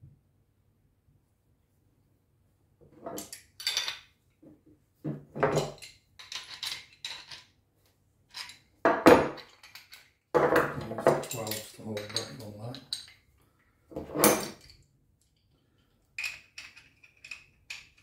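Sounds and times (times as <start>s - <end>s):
metal tools clinking and clanking: 5.4s - 7.5s, 8.3s - 13.2s.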